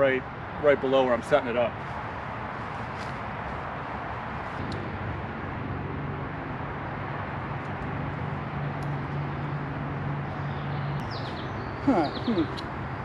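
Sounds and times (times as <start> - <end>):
helicopter droning overhead: 0.0 - 13.0.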